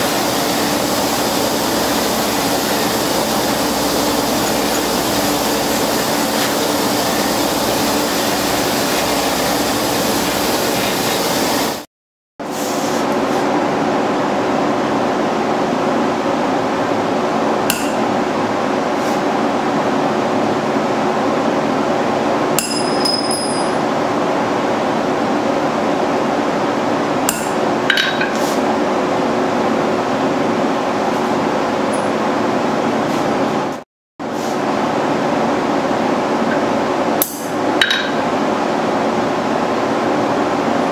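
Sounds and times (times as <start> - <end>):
hammer striking steel on anvil: 17.7 - 18.0, 22.6 - 23.8, 27.3 - 28.4.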